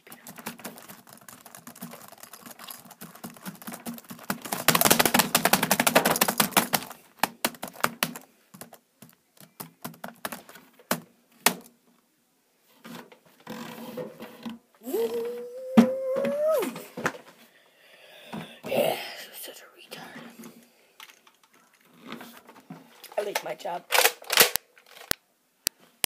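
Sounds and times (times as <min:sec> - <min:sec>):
hands tapping and clicking: 0:00.0 - 0:11.7.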